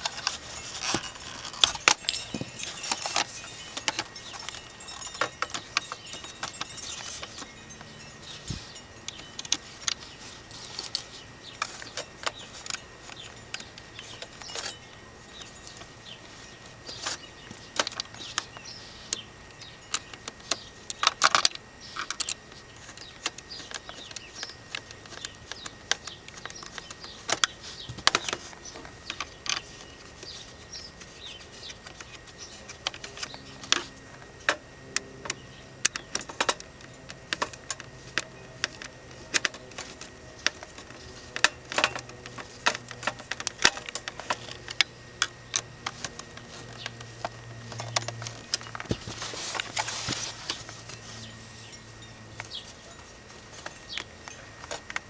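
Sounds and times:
plastic and metal parts clicking: 0:16.8 - 0:55.0.

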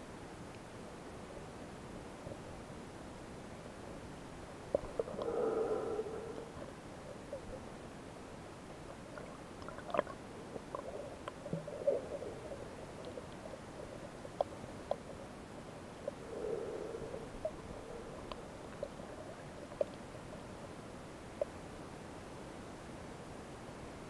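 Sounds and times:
muffled underwater hiss: 0:04.4 - 0:22.1.

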